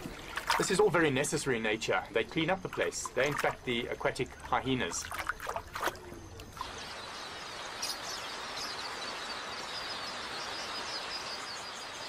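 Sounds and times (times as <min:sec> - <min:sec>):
flock of small birds chirping: 0:06.6 - 0:12.0.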